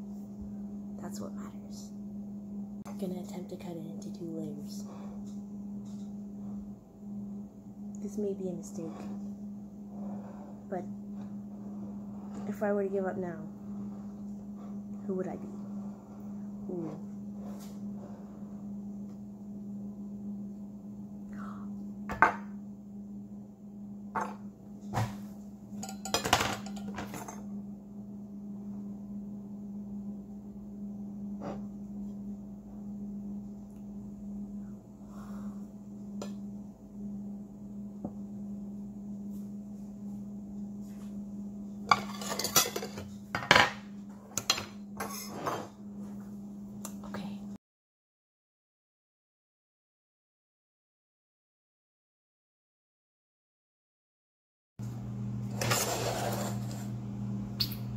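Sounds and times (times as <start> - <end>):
steady low hum: 0.0 - 47.6, 54.8 - 57.9
metal utensils clinking on a plate: 25.8 - 27.4, 41.9 - 43.1.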